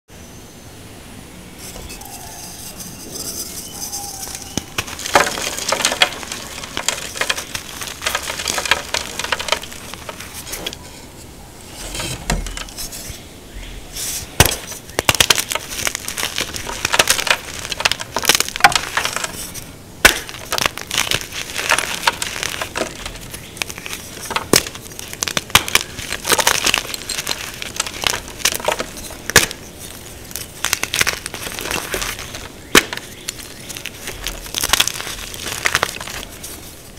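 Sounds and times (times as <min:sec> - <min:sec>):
chalk crumbling crunch: 0:01.6 - 0:11.0, 0:14.0 - 0:36.9
chalk snapping cracks: 0:04.3 - 0:10.8, 0:14.4 - 0:36.7.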